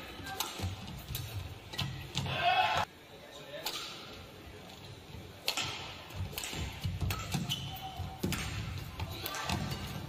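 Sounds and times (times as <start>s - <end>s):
racket hitting shuttlecock: 3.6s - 4.1s, 5.4s - 10.0s
shoes squeaking on court: 6.4s - 10.0s.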